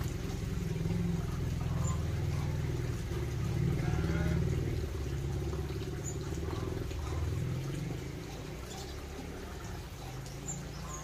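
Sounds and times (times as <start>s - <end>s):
low mechanical drone: 0.0s - 11.0s
small birds chirping: 0.0s - 11.0s.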